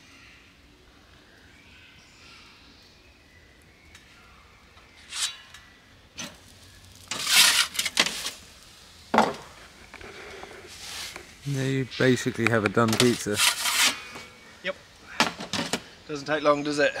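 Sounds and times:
faint birdsong: 0:00.0 - 0:17.0
metal peel scraping stone: 0:05.0 - 0:08.4, 0:12.8 - 0:14.4.

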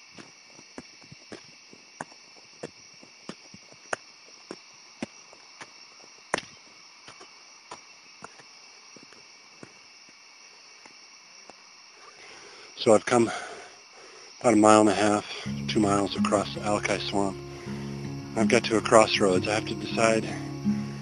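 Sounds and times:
footsteps on a trail: 0:00.0 - 0:11.7
insects chirring: 0:00.0 - 0:21.0.

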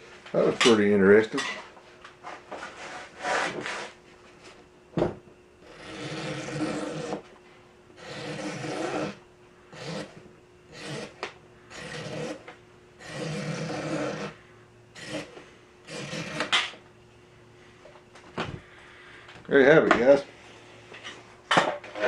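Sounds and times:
knife sawing through webbing: 0:05.7 - 0:07.2, 0:08.0 - 0:12.4, 0:13.0 - 0:14.4, 0:15.0 - 0:16.5.

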